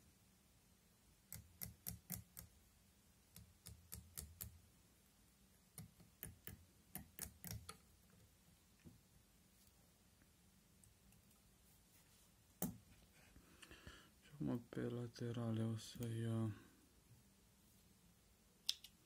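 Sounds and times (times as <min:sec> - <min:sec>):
faint sharp ticks of tying thread: 0:01.3 - 0:02.5.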